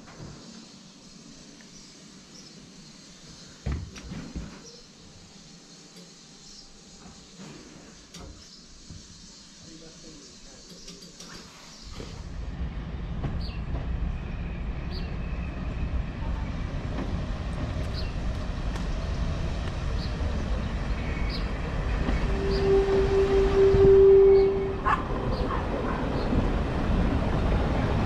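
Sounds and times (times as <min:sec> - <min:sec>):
diesel train rumbling past: 0:04.6 - 0:28.0
loud steady tone: 0:22.0 - 0:25.0.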